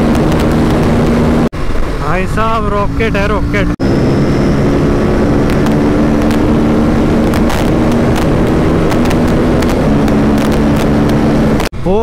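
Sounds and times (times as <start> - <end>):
motorcycle engine cruising: 0.0 - 11.8
wind rush on microphone: 0.0 - 11.9.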